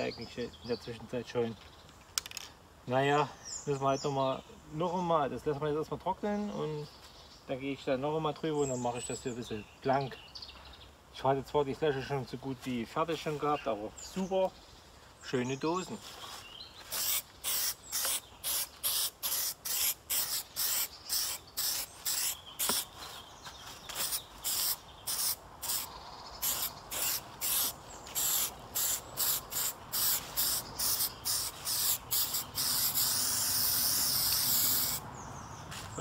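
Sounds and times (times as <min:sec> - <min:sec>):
spray paint can hissing: 0:16.9 - 0:22.9, 0:23.9 - 0:35.0.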